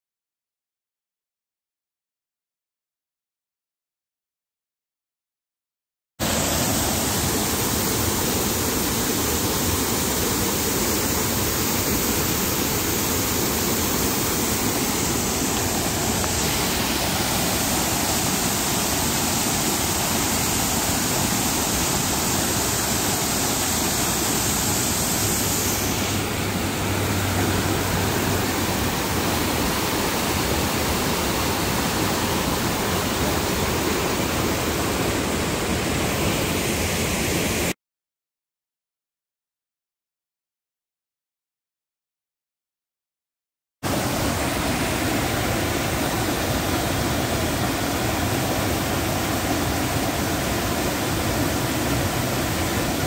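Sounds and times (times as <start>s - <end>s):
water rushing over rocks: 6.2s - 37.7s, 43.9s - 53.0s.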